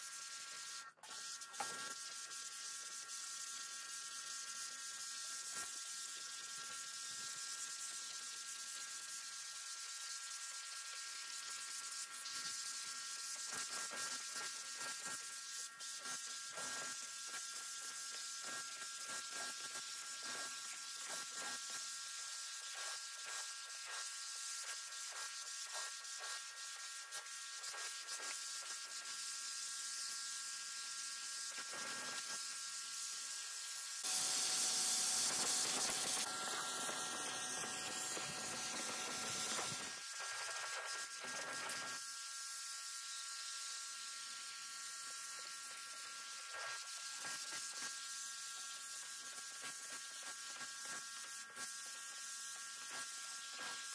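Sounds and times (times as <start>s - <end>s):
pressure washer jet hissing: 34.0s - 40.1s.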